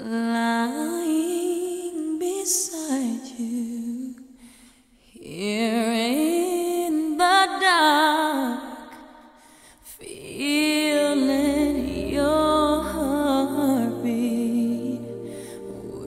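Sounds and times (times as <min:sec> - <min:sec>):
solo voice singing with vibrato: 0:10.0 - 0:16.0.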